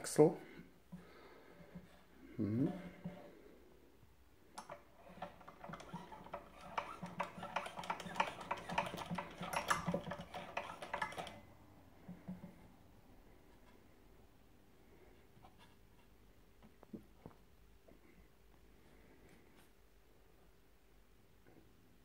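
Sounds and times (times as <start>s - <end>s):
model steam engine clattering: 4.6s - 11.4s.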